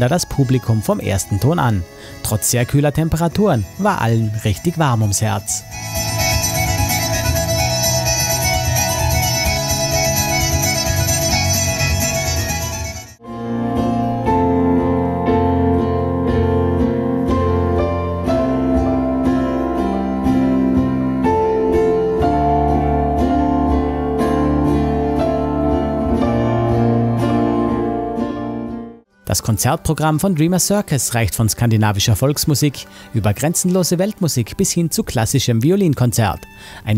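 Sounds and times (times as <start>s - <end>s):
folk trio playing: 2.0s - 28.9s
piano playing slow chords: 5.6s - 29.2s.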